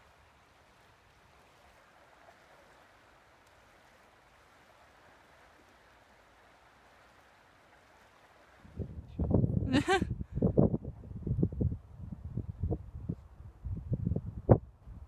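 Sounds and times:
river water rushing: 0.0s - 8.7s.

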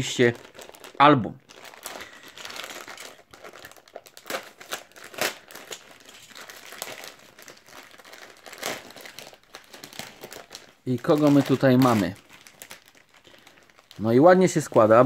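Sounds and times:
plastic wrapping crinkling and tearing: 0.0s - 15.0s.

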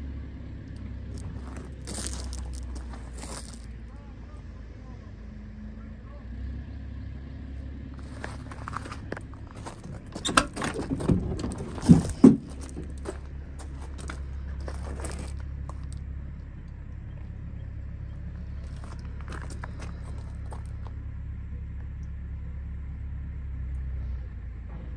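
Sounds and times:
low rumble: 0.0s - 4.6s, 7.8s - 24.9s
sharp metallic clunks: 9.5s - 13.1s.

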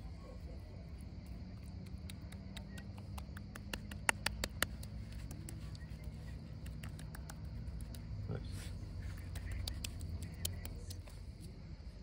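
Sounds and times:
hands rubbing wet fish: 1.7s - 11.2s.

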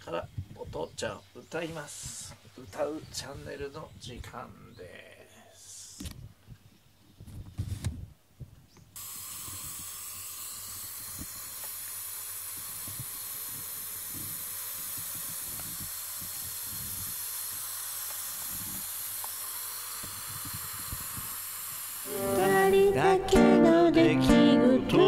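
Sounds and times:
steam inhaler hissing: 9.0s - 23.1s.

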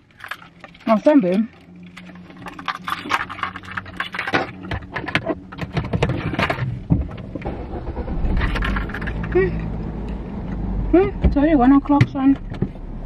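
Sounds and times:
handling clicks knocks and rustles: 0.0s - 7.5s
car engine running: 0.0s - 13.0s.

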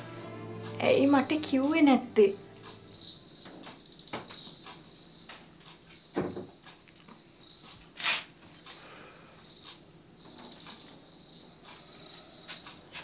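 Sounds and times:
faint high-pitched chirring: 0.0s - 12.8s
hissing rustle of person moving: 8.0s - 8.4s.

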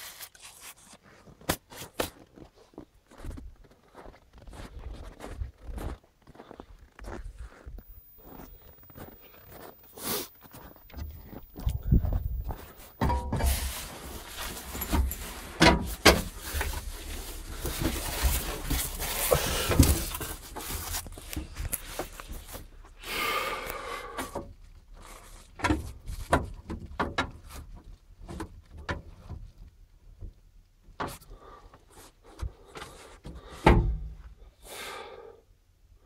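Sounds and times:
knocks and clunks in cab: 11.7s - 13.7s, 33.6s - 34.2s.

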